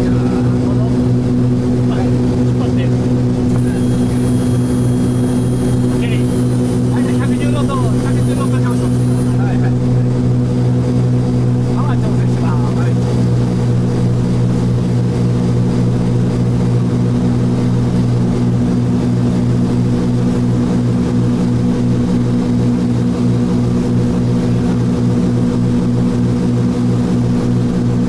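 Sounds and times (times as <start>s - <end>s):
aircraft engines droning: 0.0s - 17.1s.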